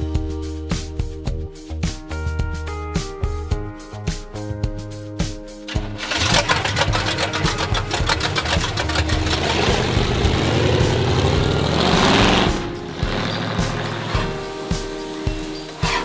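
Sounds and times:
car engine revving hard: 6.0s - 14.2s.

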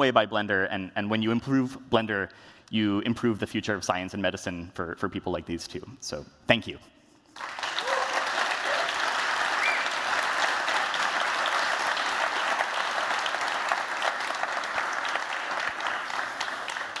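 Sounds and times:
audience applauding: 7.4s - 17.0s.

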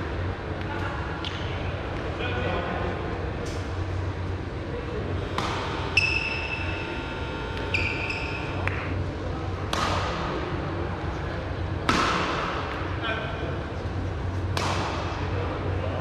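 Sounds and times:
steady ringing tone: 5.2s - 8.6s
racket hitting shuttlecock: 5.3s - 6.2s, 9.7s - 10.3s, 11.8s - 12.8s, 14.5s - 15.2s.

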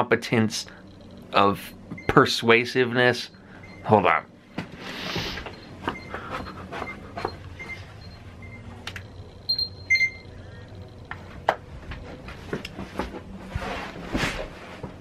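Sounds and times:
electronic beeps: 0.6s - 11.1s.

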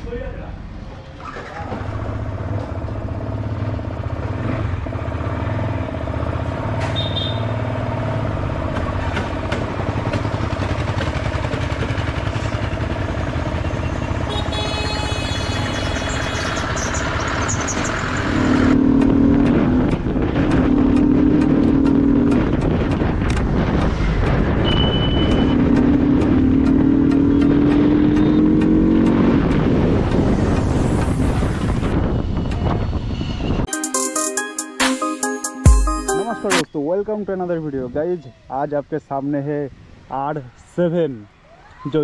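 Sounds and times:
motorcycle engine running: 7.2s - 15.7s.

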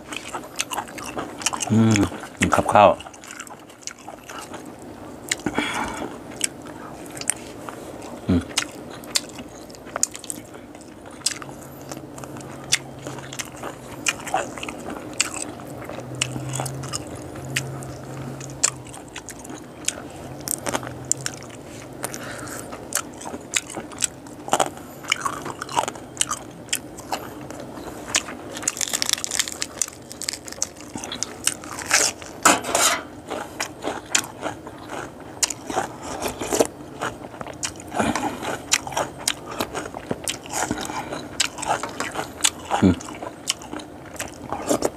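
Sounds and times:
man chewing and crunching: 0.0s - 44.9s.

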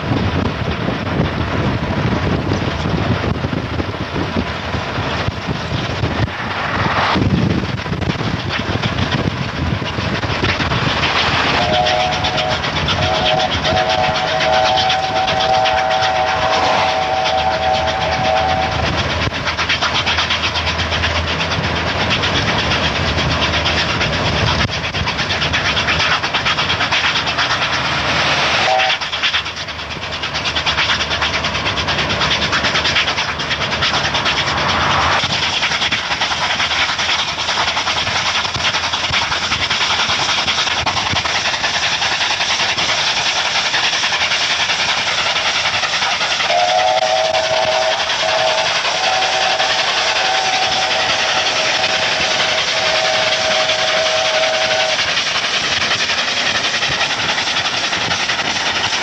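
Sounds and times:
steam train rushing: 0.0s - 59.0s
steam whistle: 11.5s - 19.2s, 28.1s - 29.0s, 46.5s - 55.2s.

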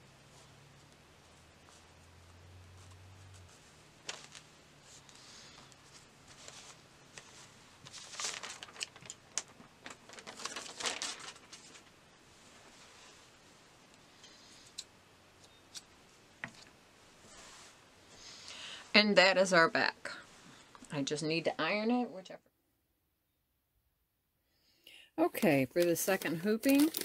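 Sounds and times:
fabric rustling: 0.0s - 14.5s, 16.1s - 19.1s.

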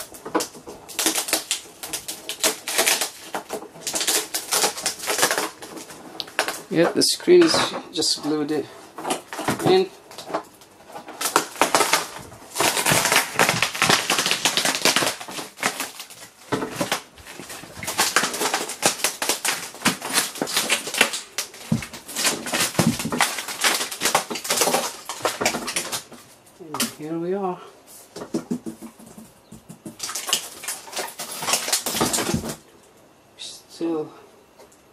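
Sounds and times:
adhesive and glass crackling: 0.0s - 6.7s, 8.4s - 26.9s, 30.0s - 32.6s.

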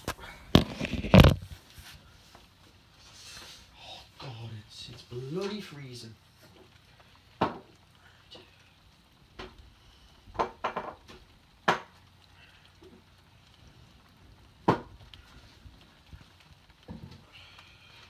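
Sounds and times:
rain hiss: 0.0s - 18.0s
sharp taps and knocks: 10.3s - 12.0s.

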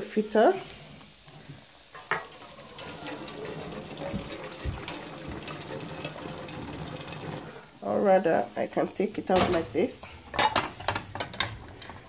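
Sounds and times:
water pouring into colander: 2.0s - 7.8s.

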